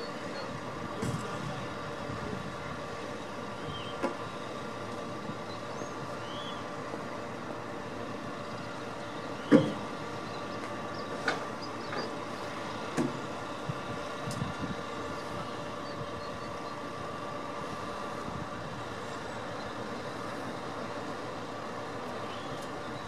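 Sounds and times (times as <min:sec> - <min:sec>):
heavy vehicle engine running: 0:00.0 - 0:23.0.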